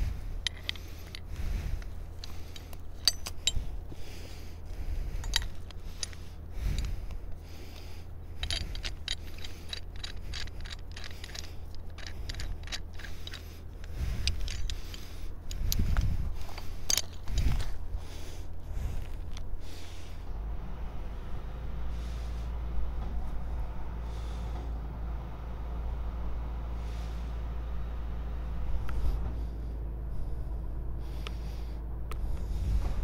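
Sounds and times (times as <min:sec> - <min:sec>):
metal shackles clinking and scraping: 0:00.0 - 0:20.1
low rumble: 0:00.0 - 0:33.0.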